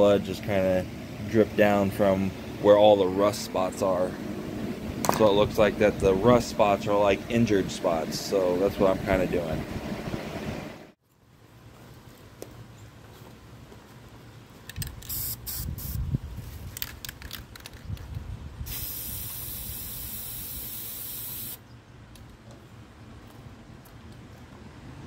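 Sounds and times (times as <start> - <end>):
spray paint can hissing: 15.0 - 16.0, 18.7 - 21.6.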